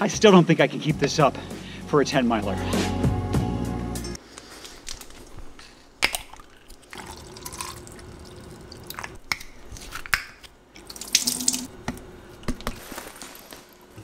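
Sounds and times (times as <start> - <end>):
liquid sloshing and dripping: 6.1 - 9.2, 10.8 - 11.7
tap water running: 6.9 - 9.2, 10.9 - 11.7.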